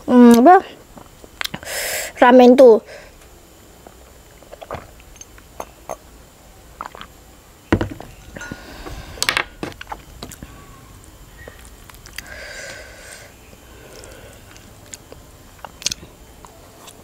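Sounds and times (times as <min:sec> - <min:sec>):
glass mug set down on table: 0:07.8 - 0:08.1.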